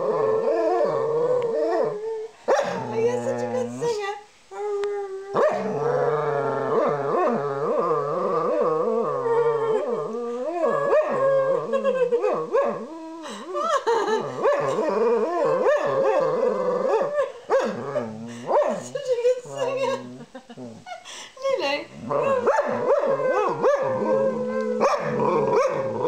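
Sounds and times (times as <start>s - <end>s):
dog howling: 4.6s - 13.3s, 13.9s - 20.2s, 22.0s - 26.0s.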